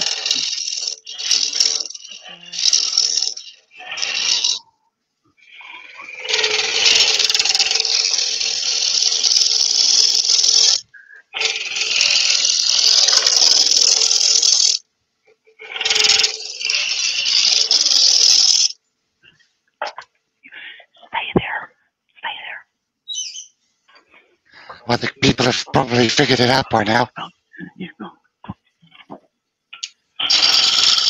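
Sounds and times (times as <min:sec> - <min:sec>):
lathe gouge scraping wood: 0:00.0 - 0:04.6, 0:06.0 - 0:14.8, 0:15.8 - 0:18.8, 0:30.2 - 0:31.0.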